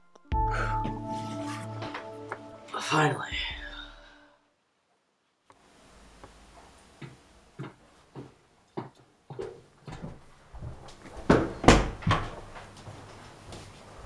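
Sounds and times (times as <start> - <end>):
footsteps walking: 6.1 - 14.0.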